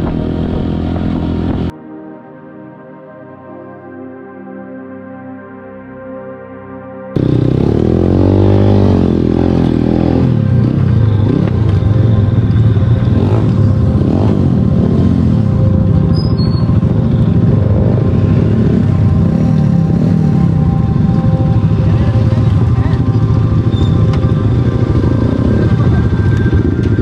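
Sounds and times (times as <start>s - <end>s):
background music: 0.0s - 27.0s
vehicle engine revving loudly: 13.0s - 15.5s.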